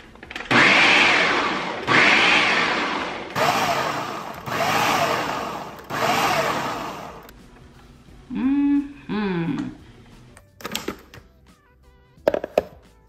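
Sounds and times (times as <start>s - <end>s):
food processor pulsing: 0.4s - 7.3s.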